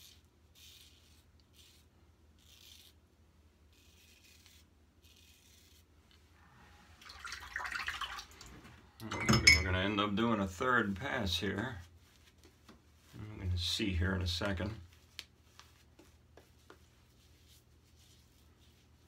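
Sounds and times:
razor scraping stubble: 0.0 - 3.0, 3.6 - 6.2
running water: 6.8 - 9.8.

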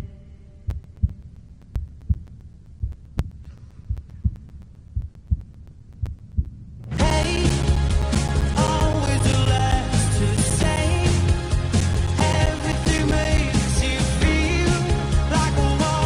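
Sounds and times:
faint hum: 0.0 - 14.3
heartbeat thumps: 0.7 - 15.7
loud rock music: 7.0 - 16.0.

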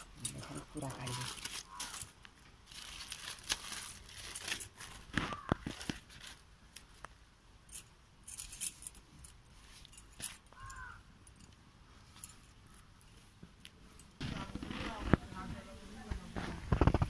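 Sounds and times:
dry leaf crackling and tearing: 0.4 - 6.4.

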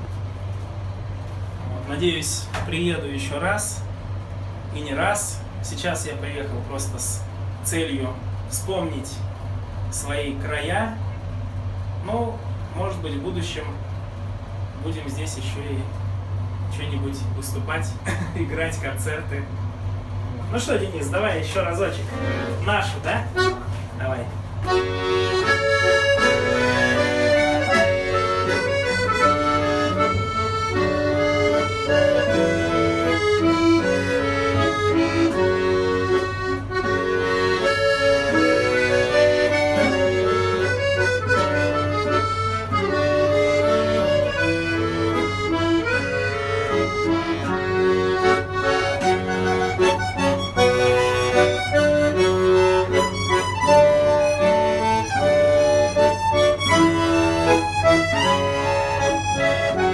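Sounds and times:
button accordion playing melody: 21.4 - 59.9
lute strumming: 24.7 - 59.9.

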